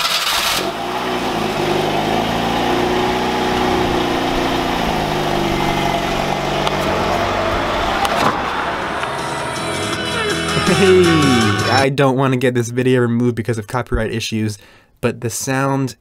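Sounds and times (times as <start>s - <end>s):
car engine running: 0.0s - 11.8s.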